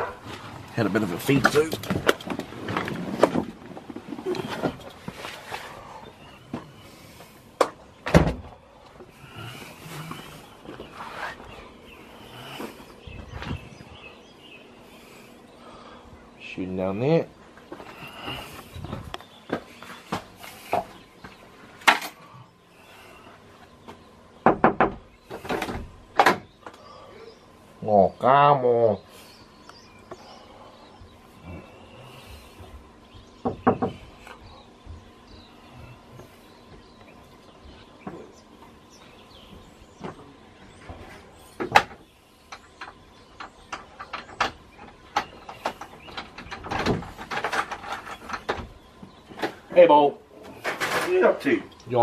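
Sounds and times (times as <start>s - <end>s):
knocks and thumps on wood: 23.9s - 26.5s, 33.4s - 34.0s.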